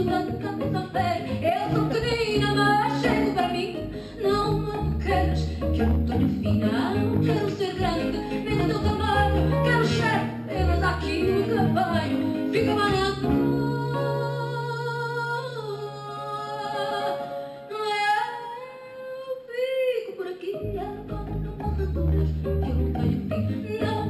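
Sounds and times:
acoustic guitars strumming: 0.0s - 14.7s
double bass: 0.0s - 17.4s, 20.6s - 24.0s
woman singing: 0.0s - 24.0s.

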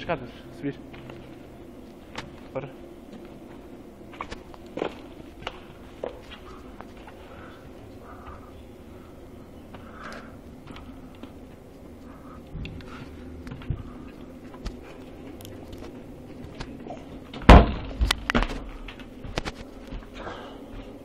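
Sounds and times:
wooden door banging open: 17.3s - 18.6s.

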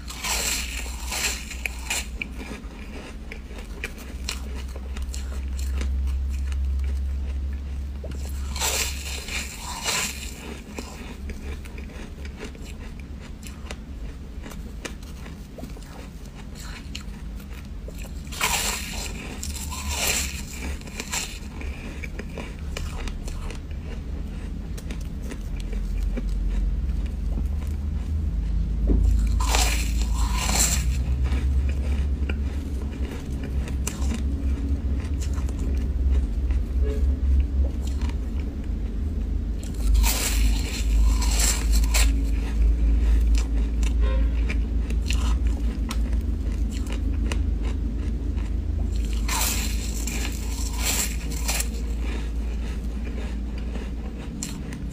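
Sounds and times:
chewing crackling: 0.0s - 54.9s
low rumble: 0.0s - 54.9s.

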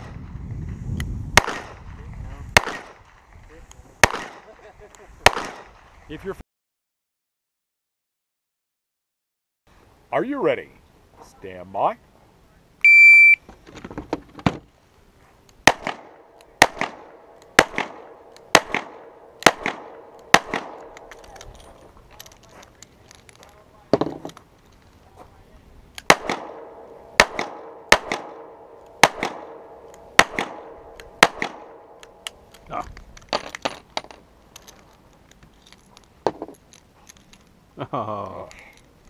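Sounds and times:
pistol shots with echo: 1.4s - 1.9s, 2.6s - 3.2s, 4.0s - 4.6s, 5.2s - 5.8s, 15.6s - 21.2s, 26.0s - 32.3s.

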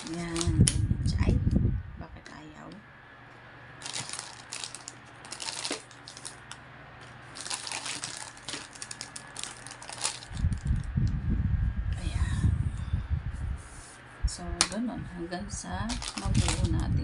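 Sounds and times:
plastic wrapping crinkling: 0.0s - 0.8s, 3.8s - 10.9s, 15.8s - 17.0s.

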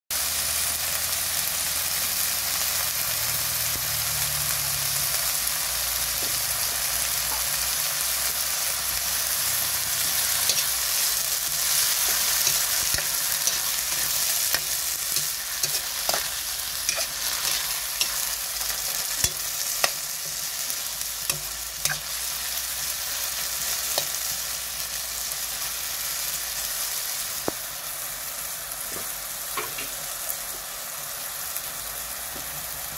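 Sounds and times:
food sizzling in a wok: 0.1s - 32.9s
metal spoon scraping a pan: 8.2s - 24.4s.

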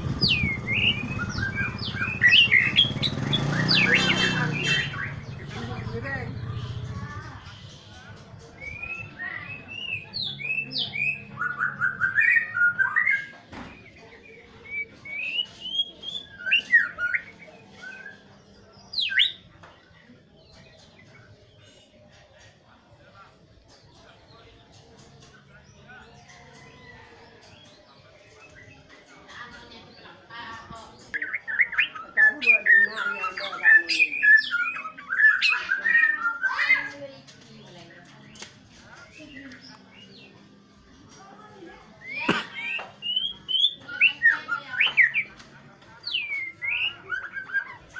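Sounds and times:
bird singing whistled phrases: 14.6s - 18.2s, 31.2s - 36.9s, 42.0s - 45.3s, 46.0s - 47.9s.

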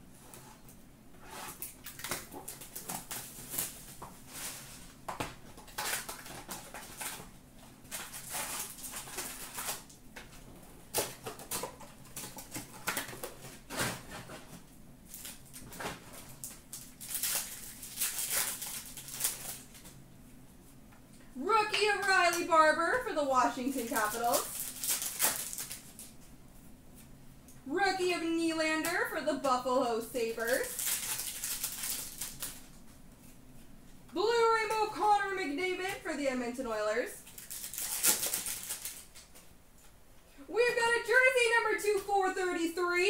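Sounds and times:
foil wrappers tearing and crinkling: 1.5s - 4.9s, 5.5s - 14.3s, 15.0s - 19.9s, 23.6s - 26.2s, 30.4s - 32.7s, 37.2s - 39.3s
cards rustling: 37.3s - 39.3s.

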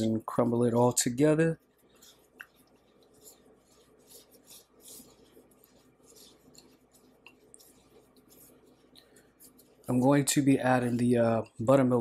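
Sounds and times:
fingers crumbling dry spice: 1.8s - 11.1s.

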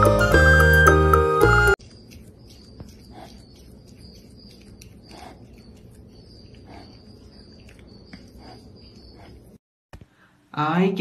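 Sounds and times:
porcupine chewing leaves: 1.8s - 9.6s.

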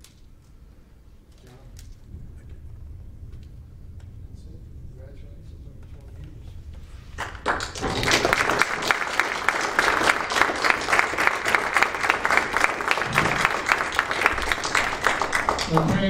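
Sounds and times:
people applauding: 7.0s - 16.0s.

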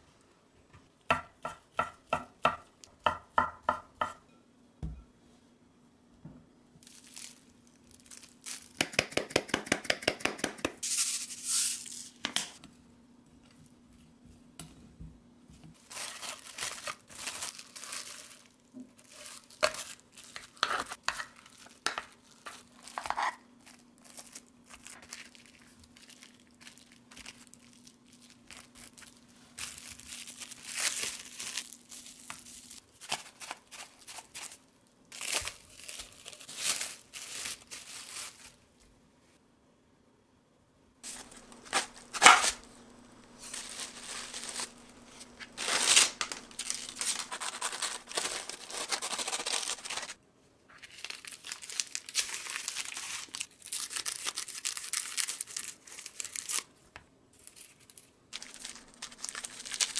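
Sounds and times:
cling wrap crinkling and tearing: 6.8s - 8.8s, 15.8s - 38.6s, 41.0s - 56.7s, 57.4s - 59.9s.

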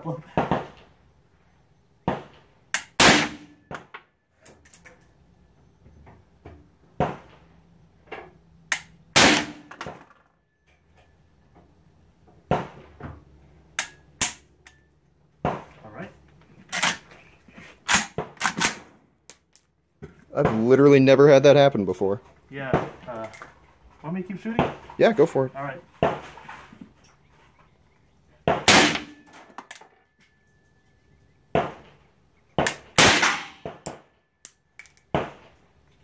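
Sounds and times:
suppressed rifle shots: 2.8s - 3.8s, 9.2s - 9.9s, 28.5s - 29.3s, 32.6s - 34.0s.

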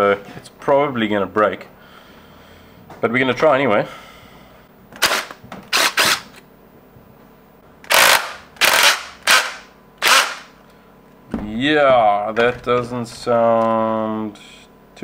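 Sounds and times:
impact driver hammering: 5.0s - 6.3s, 7.9s - 10.5s.

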